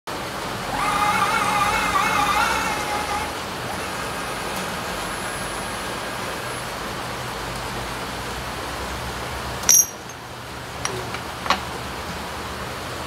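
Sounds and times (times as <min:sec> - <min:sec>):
steady machine hum: 0:00.1 - 0:07.2
high-pitched machine squeal: 0:00.7 - 0:06.8.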